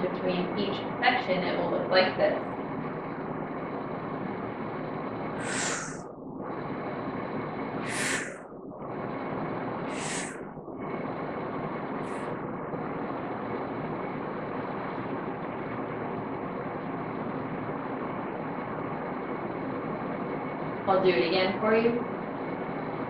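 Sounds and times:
steady background hiss: 0.0s - 23.0s
person inhaling through mouth: 5.4s - 6.0s, 7.8s - 8.4s, 9.9s - 10.4s.

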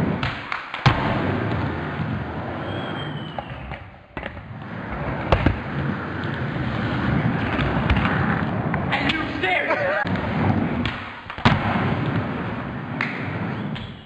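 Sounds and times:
skateboard landing clacks: 0.0s - 1.7s, 5.2s - 5.6s, 10.1s - 12.3s
skateboard wheels rolling on concrete: 0.0s - 14.0s.

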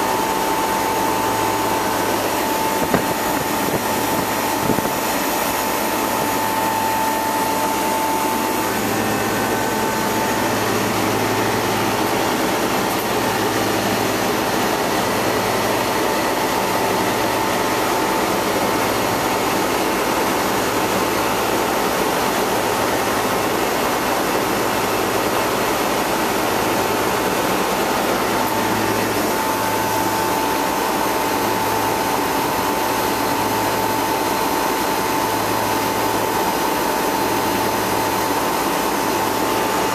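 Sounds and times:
high whine: 0.0s - 24.6s
compressor low hum: 0.0s - 39.9s
condenser fan blowing air: 0.0s - 39.9s.

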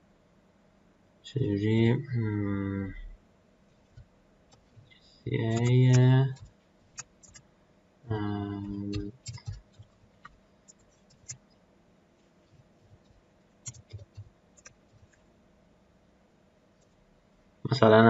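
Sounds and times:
man's drawn-out hesitation sound: 5.3s - 6.4s, 8.1s - 9.2s
computer keyboard keystrokes: 5.5s - 7.4s, 8.6s - 11.4s, 13.0s - 15.2s.

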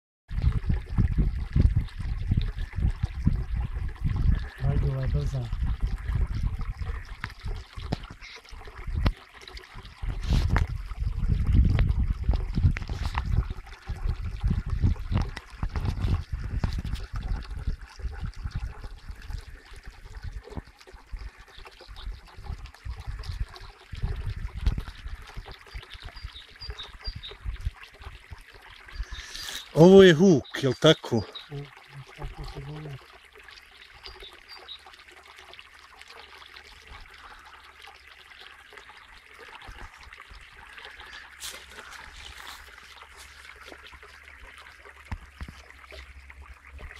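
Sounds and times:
stream babbling over stones: 0.3s - 46.9s.

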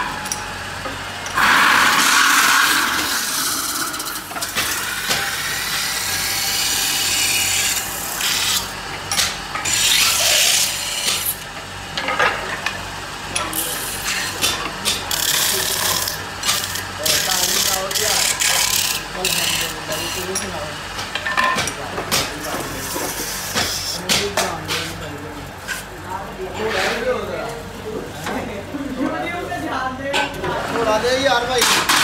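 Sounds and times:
tool scraping spinning metal: 1.3s - 8.7s, 9.6s - 11.4s, 15.1s - 20.4s.

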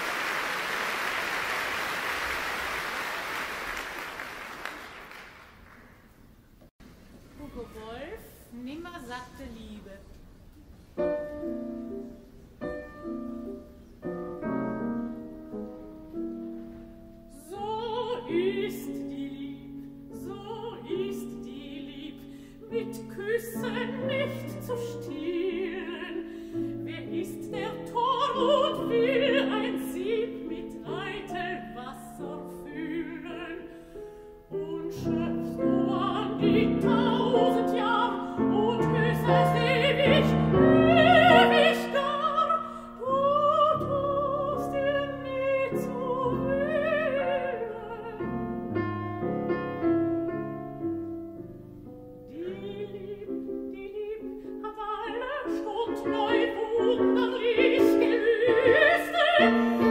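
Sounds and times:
piano accompaniment: 10.9s - 59.9s
woman singing with vibrato: 17.3s - 33.8s, 34.5s - 48.7s, 52.3s - 59.9s.

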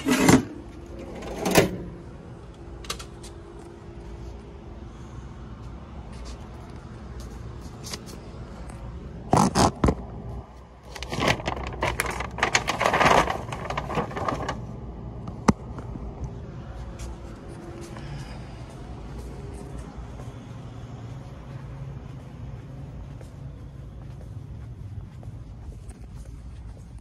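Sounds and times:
cardboard scraping and crackling: 9.3s - 10.0s, 10.9s - 14.7s.

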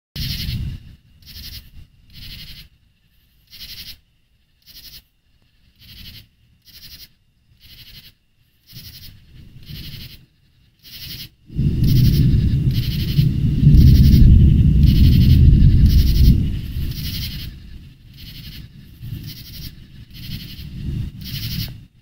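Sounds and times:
pulsed animal calls: 5.6s - 10.2s, 10.8s - 21.8s
low rumbles: 11.5s - 22.0s.

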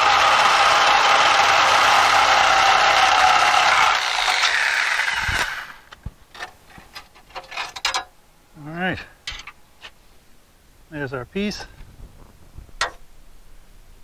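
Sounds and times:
reciprocating saw cutting steel: 0.0s - 5.9s.

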